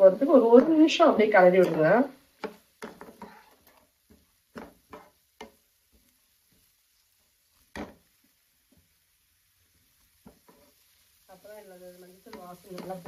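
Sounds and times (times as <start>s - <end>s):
spatula scraping and tapping pan: 0.4s - 13.0s.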